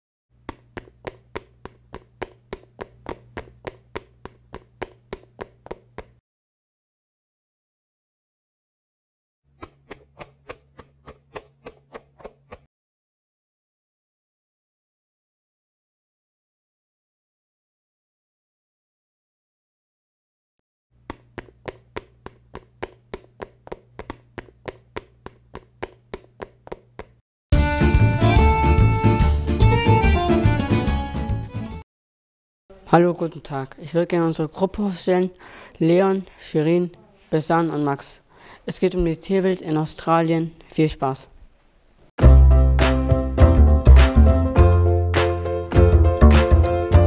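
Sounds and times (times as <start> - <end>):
rapid sharp taps: 0.4 - 6.2, 21.0 - 27.2.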